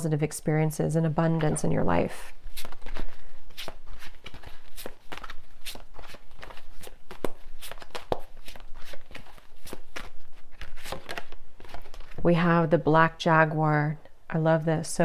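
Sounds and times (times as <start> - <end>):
cards being shuffled: 2.3 - 12.2.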